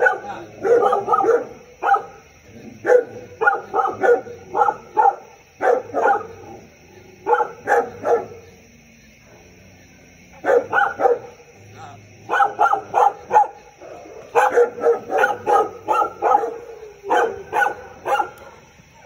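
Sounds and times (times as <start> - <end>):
dog barking: 0.0 - 2.2, 2.8 - 6.6, 7.2 - 8.5, 10.4 - 11.4, 12.2 - 19.0.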